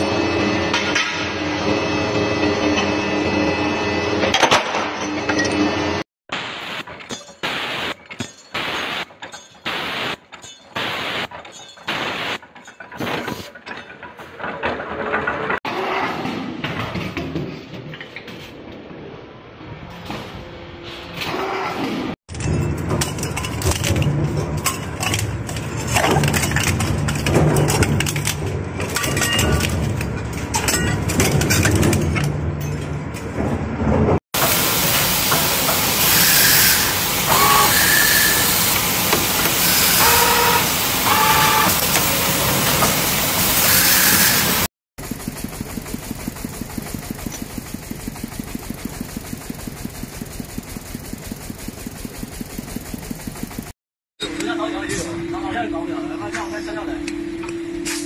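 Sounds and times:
wire-forming machine running: 0:06.4 - 0:15.6, 0:22.3 - 0:32.3, 0:34.4 - 0:53.8
metal shredder crunching metal: 0:22.3 - 0:33.6, 0:34.4 - 0:53.8
low motor hum: 0:45.0 - 0:53.7
roller machine rhythmic clatter: 0:45.0 - 0:53.8.

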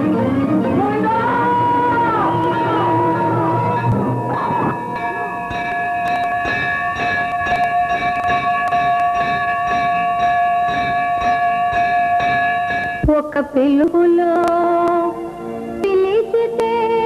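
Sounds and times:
hand bell ringing: 0:03.6 - 0:13.1.

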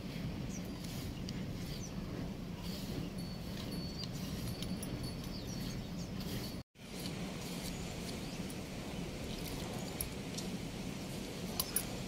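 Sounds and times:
small birds chirping: 0:00.0 - 0:06.6, 0:07.4 - 0:10.5
low outdoor rumble: 0:00.0 - 0:12.0.

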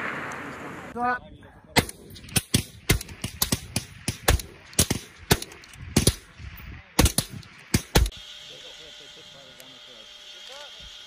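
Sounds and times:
suppressed rifle shots: 0:01.8 - 0:06.4, 0:07.0 - 0:08.2.

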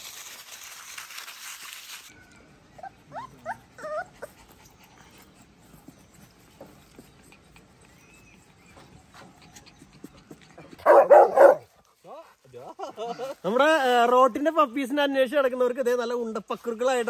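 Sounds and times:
puppies whining: 0:02.1 - 0:11.6.

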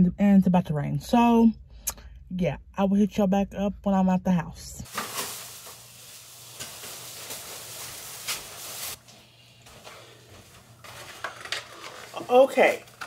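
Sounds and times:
shopping bags rustling: 0:04.8 - 0:09.1, 0:09.7 - 0:13.0.

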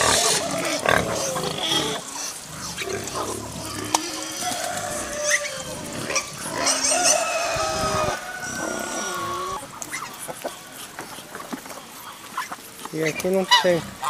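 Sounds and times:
pigs squealing: 0:00.0 - 0:14.0.

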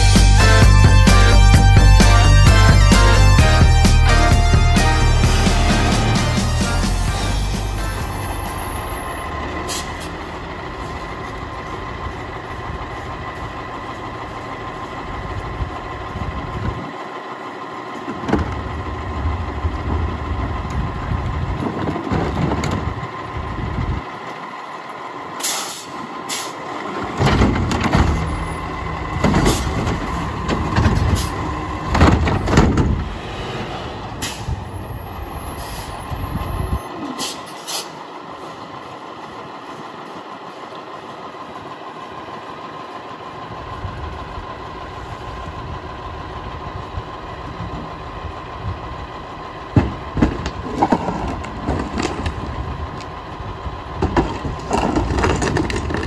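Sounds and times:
diesel engine running: 0:00.0 - 0:56.0
metallic clanks and bangs: 0:26.9 - 0:33.2, 0:49.7 - 0:52.5.

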